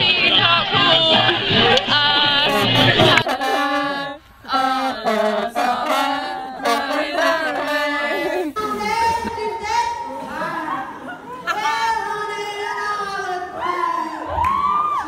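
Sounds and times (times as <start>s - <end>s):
trombones playing slow melody: 2.4s - 7.8s.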